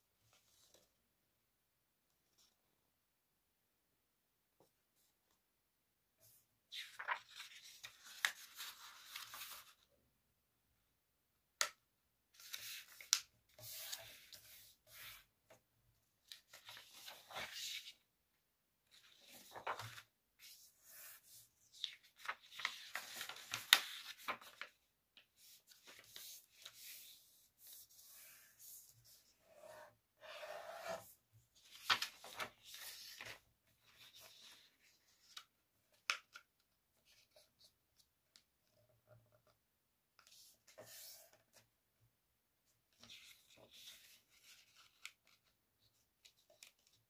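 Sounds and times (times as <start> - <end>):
paper rustling and creasing: 6.7 - 9.9, 16.3 - 18.0, 18.9 - 24.8, 25.4 - 27.8, 31.6 - 36.4, 42.9 - 47.0.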